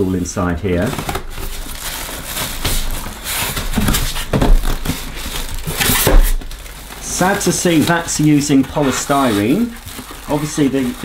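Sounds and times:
plastic wrapping rustling: 0:00.0 - 0:11.0
polystyrene squeaking against cardboard: 0:00.0 - 0:11.0.

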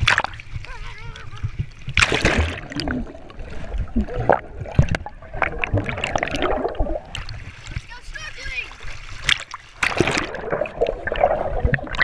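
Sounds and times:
muffled underwater sloshing and bubbling: 0:00.0 - 0:12.0
camera splashing into water: 0:01.9 - 0:03.0.

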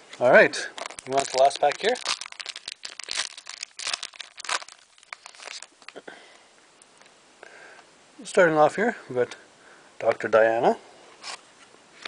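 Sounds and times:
foil wrapper crackling: 0:00.8 - 0:06.0.

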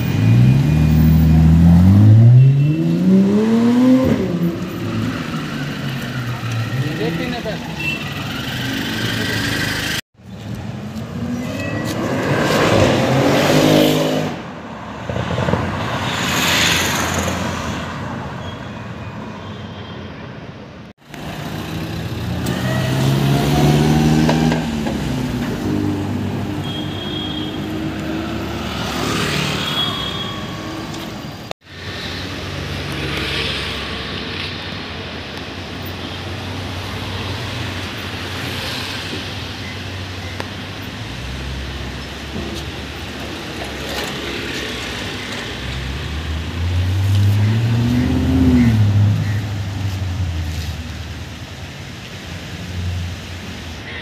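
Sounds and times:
car engines revving and accelerating: 0:00.0 - 0:10.0, 0:10.6 - 0:17.9, 0:21.2 - 0:26.7, 0:30.5 - 0:40.0, 0:40.7 - 0:51.4.

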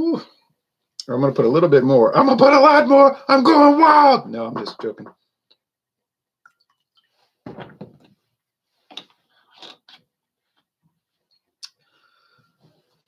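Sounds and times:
bottles knocking on table: 0:07.4 - 0:08.1.

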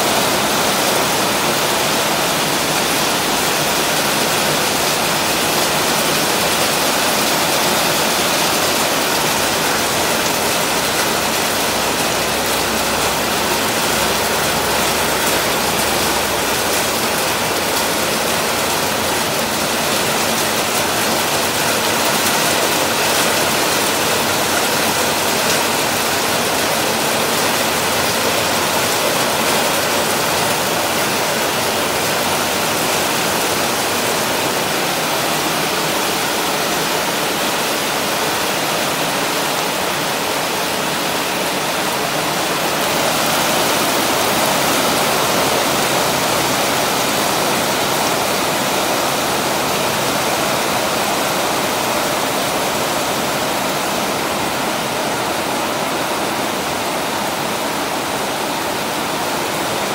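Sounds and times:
heavy rain hissing: 0:00.0 - 0:54.5.

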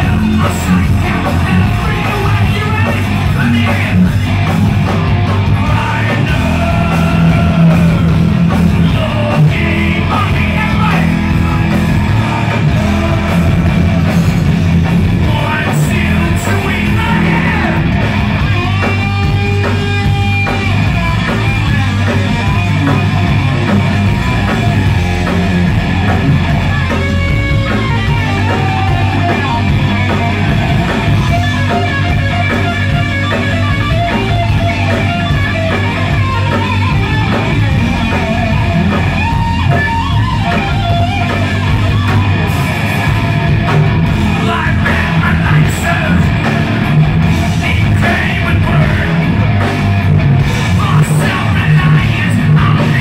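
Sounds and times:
heavy metal band playing live: 0:00.0 - 0:53.0
person singing: 0:05.5 - 0:14.4, 0:15.2 - 0:17.9, 0:44.3 - 0:46.8, 0:47.5 - 0:49.4, 0:50.6 - 0:53.0.

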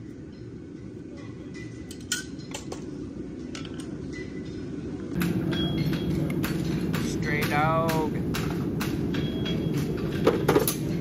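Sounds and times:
metal tools clinking: 0:01.2 - 0:02.9, 0:09.2 - 0:11.0.

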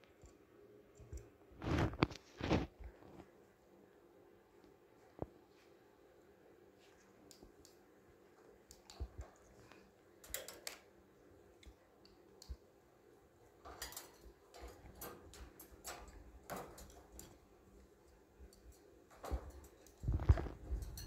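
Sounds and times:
parrot clicking on wire cage: 0:10.2 - 0:10.9, 0:13.6 - 0:17.4.

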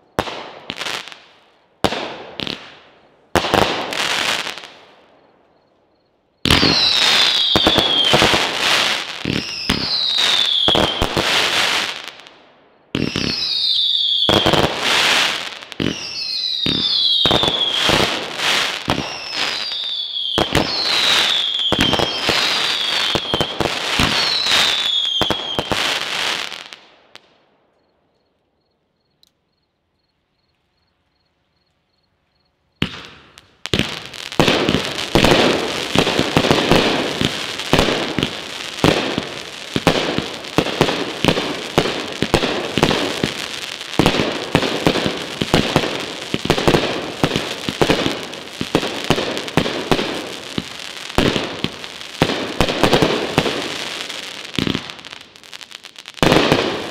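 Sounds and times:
fireworks crackling and banging: 0:00.0 - 0:04.8, 0:06.4 - 0:12.3, 0:12.9 - 0:27.3, 0:32.8 - 0:56.9
firework falling whistles: 0:03.5 - 0:12.0, 0:12.9 - 0:26.8.

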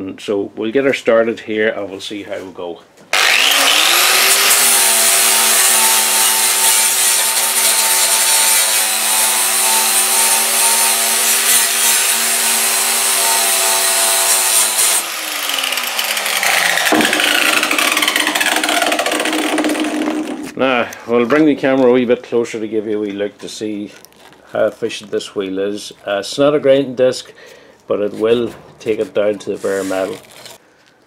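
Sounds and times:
angle grinder sanding metal: 0:03.2 - 0:20.6.

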